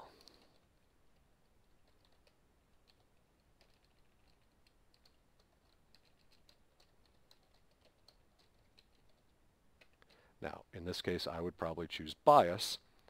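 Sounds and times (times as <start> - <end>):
faint keyboard typing: 0.0 - 10.4.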